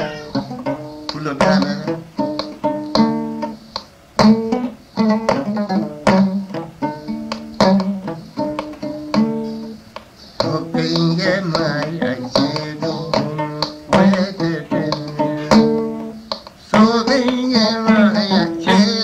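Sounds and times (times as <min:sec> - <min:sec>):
person singing ornamented notes: 0:00.0 - 0:02.6, 0:10.4 - 0:19.0
plucked string instruments: 0:00.0 - 0:19.0
hand percussion: 0:05.3 - 0:19.0.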